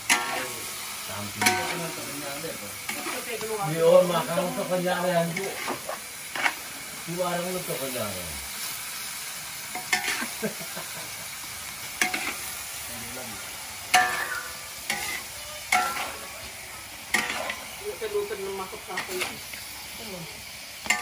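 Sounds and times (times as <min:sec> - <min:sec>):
metal spatula scraping and clanking: 0:00.0 - 0:00.6, 0:01.2 - 0:06.8, 0:09.7 - 0:10.4, 0:12.0 - 0:12.5, 0:13.9 - 0:19.6
wok ringing: 0:00.0 - 0:07.9, 0:09.7 - 0:10.7, 0:12.0 - 0:21.0
meat sizzling in a wok: 0:00.0 - 0:21.0.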